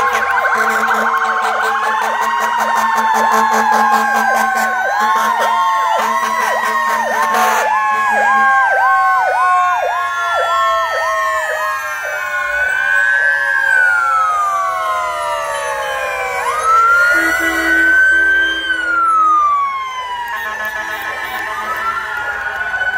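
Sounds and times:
low horn blare: 0:00.0 - 0:08.7, 0:16.3 - 0:22.7
siren yelp: 0:00.0 - 0:22.9
wailing sirens: 0:00.0 - 0:22.9.

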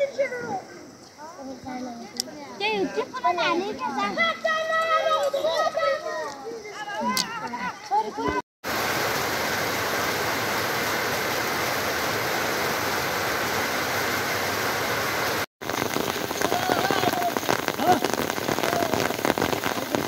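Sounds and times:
rain streaming off roof: 0:08.6 - 0:20.0
sharp raindrop hits: 0:08.6 - 0:20.0.

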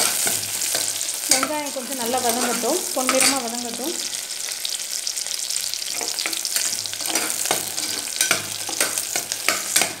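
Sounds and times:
shallots sizzling in hot oil: 0:00.0 - 0:10.0
steel ladle scraping a pot: 0:05.9 - 0:10.0.

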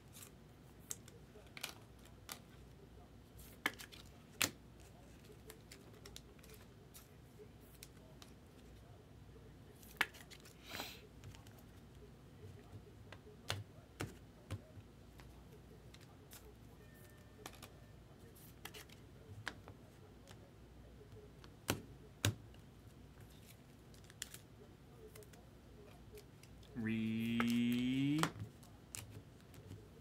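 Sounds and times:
trading cards clicking and tapping: 0:26.4 - 0:29.8.

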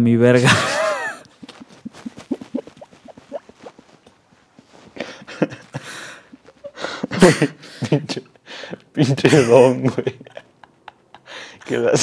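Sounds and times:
man laughing breathily: 0:00.5 - 0:03.7, 0:04.8 - 0:08.6, 0:10.3 - 0:11.7.

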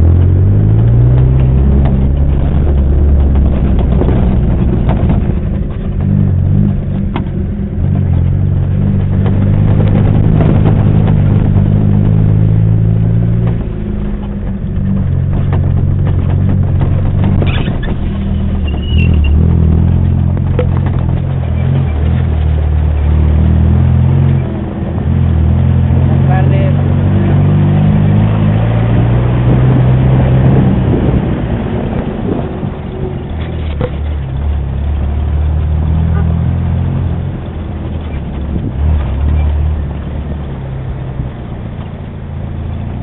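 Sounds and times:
vehicle knocks and rattles: 0:00.0 - 0:26.7, 0:28.8 - 0:43.0
off-road vehicle engine running: 0:00.0 - 0:43.0.

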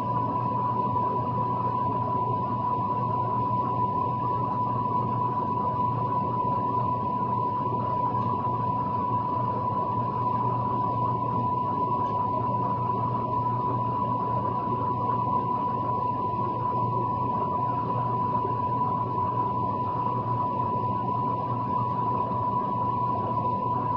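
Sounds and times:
high-pitched whine: 0:00.0 - 0:23.9
low hum: 0:06.3 - 0:23.9.

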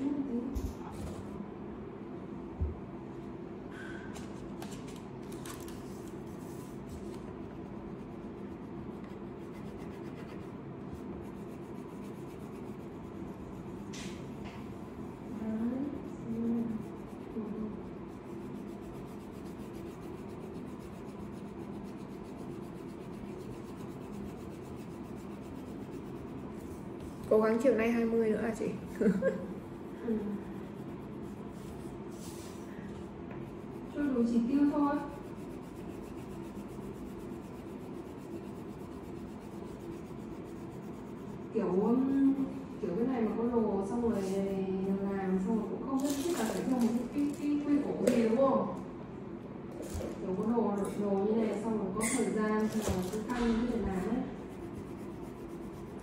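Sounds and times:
crayon rubbing on paper: 0:05.8 - 0:32.7, 0:33.4 - 0:45.5, 0:52.8 - 0:56.0.

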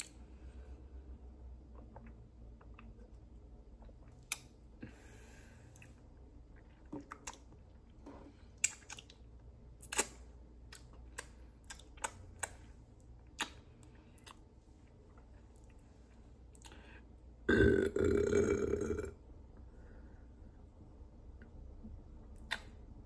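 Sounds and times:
mouth clicks and smacks: 0:01.7 - 0:04.7, 0:08.6 - 0:14.5, 0:16.5 - 0:16.8, 0:22.2 - 0:23.0
loud burp: 0:17.5 - 0:19.2.

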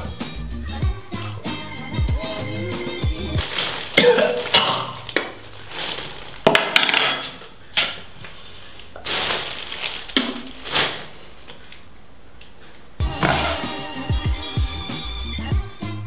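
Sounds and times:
plastic bag crinkling: 0:03.3 - 0:06.8, 0:08.6 - 0:11.7.

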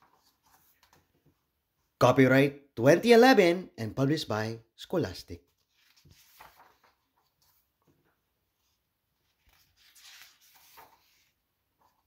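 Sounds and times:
paper page rustling: 0:00.0 - 0:01.2, 0:05.5 - 0:12.0.

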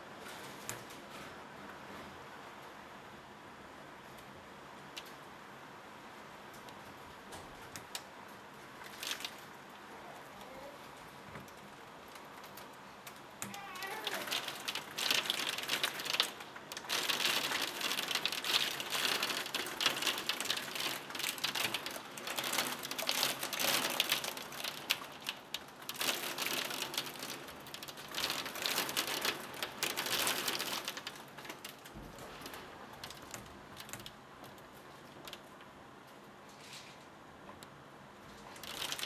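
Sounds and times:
heavy rain pelting a window: 0:00.0 - 0:39.0.

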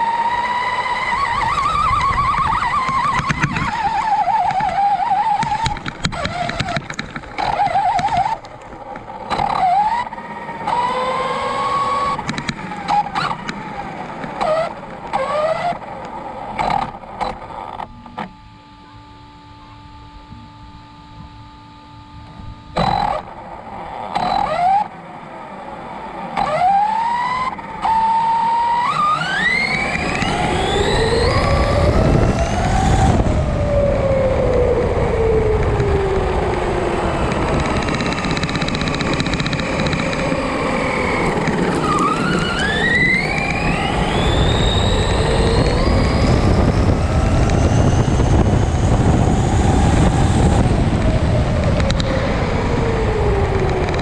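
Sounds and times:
wind noise: 0:00.0 - 0:10.0, 0:29.0 - 0:54.0
electric motor whining: 0:00.0 - 0:54.0.

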